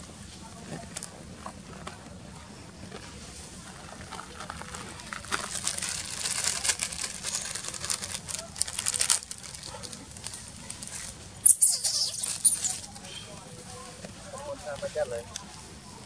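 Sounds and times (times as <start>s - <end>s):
plastic snack packet crinkling: 3.8s - 13.0s.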